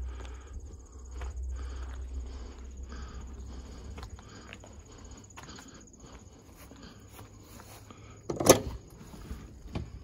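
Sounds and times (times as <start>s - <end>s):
low rumble: 0.0s - 7.5s
insects chirping: 0.0s - 10.0s.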